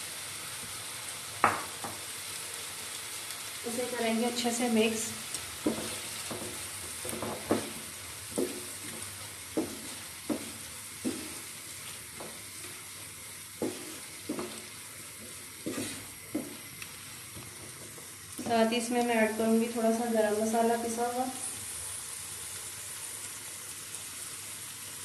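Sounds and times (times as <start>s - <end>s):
vegetables sizzling in oil: 0.0s - 25.0s
wooden spatula scraping pan: 5.6s - 12.9s, 13.6s - 16.7s.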